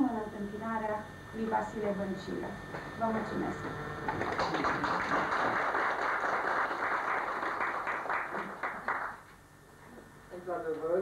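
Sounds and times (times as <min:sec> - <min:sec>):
audience applauding: 0:04.0 - 0:09.2.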